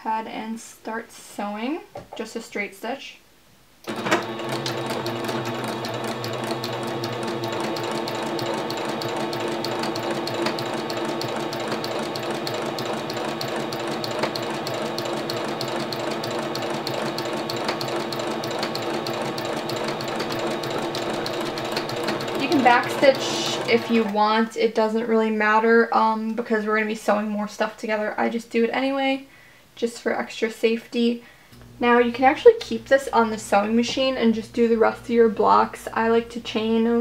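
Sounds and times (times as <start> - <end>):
sewing machine running: 3.9 - 24.2.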